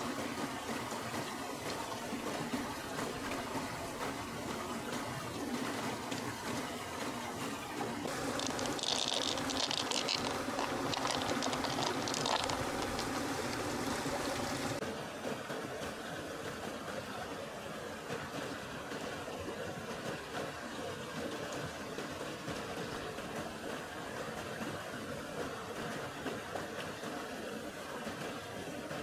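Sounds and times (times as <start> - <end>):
river water running: 0.0 - 29.0
pearls clicking into shell: 8.2 - 13.2.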